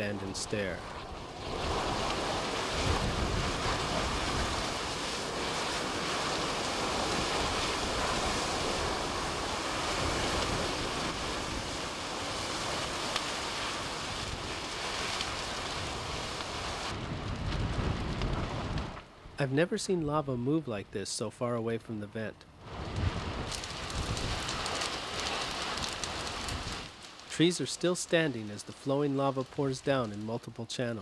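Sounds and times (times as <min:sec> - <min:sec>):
roar of burning flames: 0:00.0 - 0:19.4, 0:22.6 - 0:30.2
sharp crack: 0:22.8 - 0:30.5.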